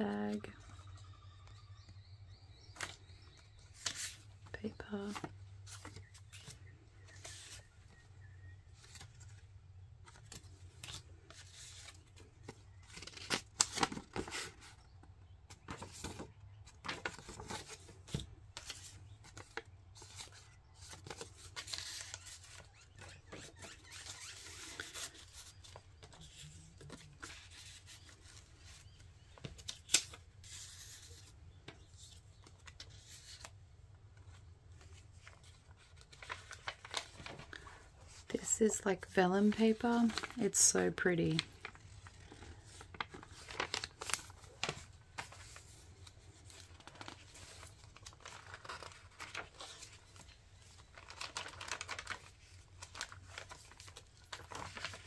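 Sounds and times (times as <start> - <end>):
paper rustling and sliding: 34.8 - 38.3, 41.6 - 55.0.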